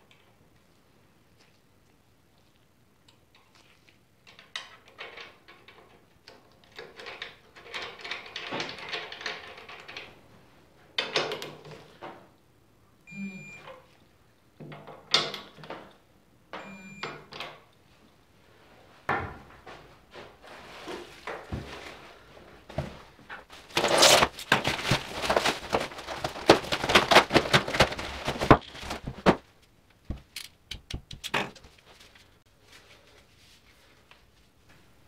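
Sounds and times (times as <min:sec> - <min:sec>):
plastic wrapping crinkling and tearing: 0:23.5 - 0:29.4
tools and parts clicking: 0:30.3 - 0:31.6.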